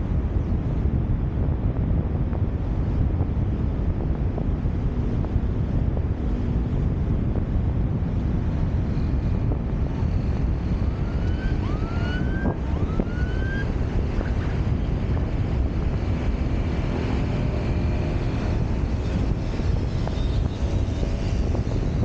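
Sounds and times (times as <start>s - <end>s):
car road noise: 0.0s - 22.0s
wind rumble on microphone: 0.0s - 22.0s
siren whooping: 10.8s - 14.6s.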